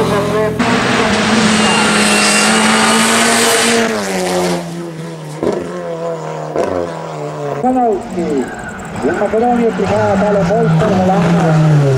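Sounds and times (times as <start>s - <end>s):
race car engine at high revs: 0.0s - 11.9s
gear change breaks: 7.6s - 11.9s.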